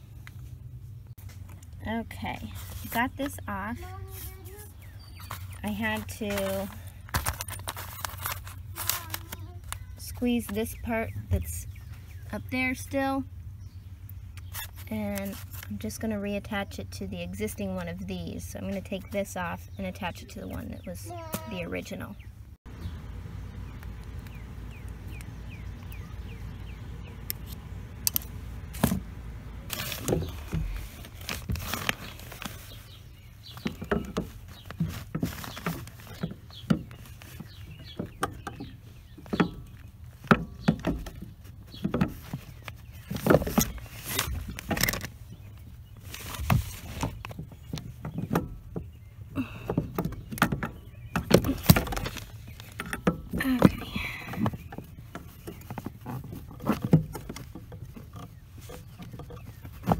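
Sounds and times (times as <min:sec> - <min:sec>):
steady low hum: 0:19.8 - 0:31.2.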